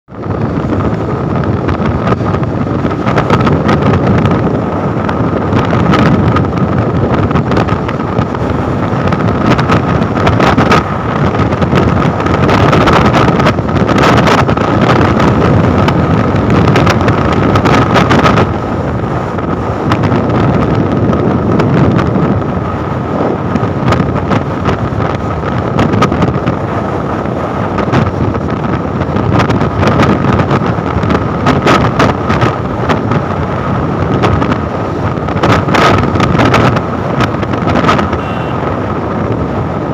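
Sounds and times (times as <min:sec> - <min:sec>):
motorcycle engine running: 0:00.1 - 0:39.9
wind rushing over microphone: 0:00.1 - 0:39.9
steady whine: 0:34.8 - 0:39.9.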